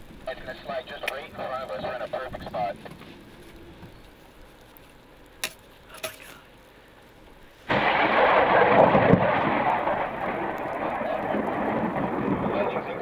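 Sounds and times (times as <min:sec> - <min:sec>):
thunder clap rumbling: 0:07.7 - 0:13.0.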